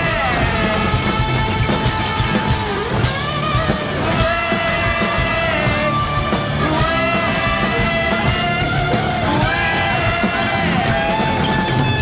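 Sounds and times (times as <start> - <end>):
distorted electric guitar: 0.0 - 12.0
hard rock band playing: 0.0 - 12.0.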